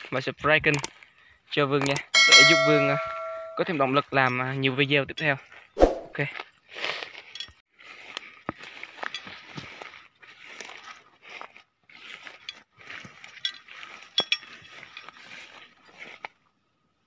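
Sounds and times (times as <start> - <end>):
sharp clicks and clinks: 1.8 - 3.7
footsteps rustling through grass: 5.5 - 16.5.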